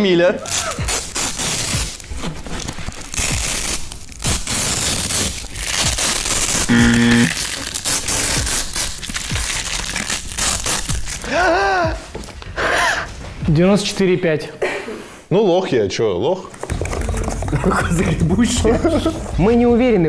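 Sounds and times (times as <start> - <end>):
plastic strip crinkling by hand: 0.5 - 11.4
person speaking: 6.7 - 7.6.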